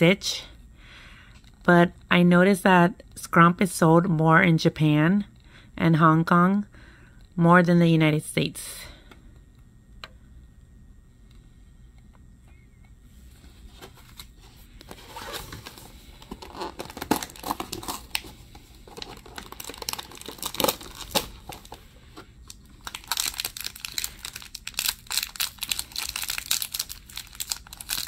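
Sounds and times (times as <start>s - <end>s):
cardboard packaging crackling: 13.7s - 28.0s
foil wrapper crinkling and tearing: 15.1s - 28.0s.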